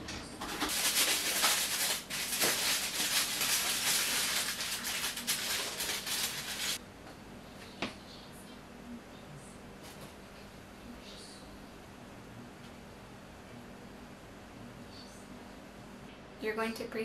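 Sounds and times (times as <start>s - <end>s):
aluminium foil crinkling: 0.4s - 6.8s.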